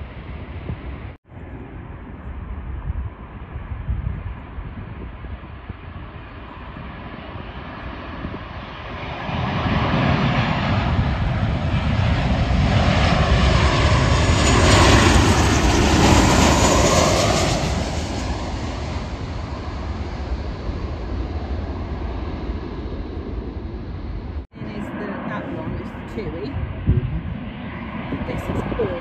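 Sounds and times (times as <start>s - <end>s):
jet airliner engine noise: 0.0s - 29.0s.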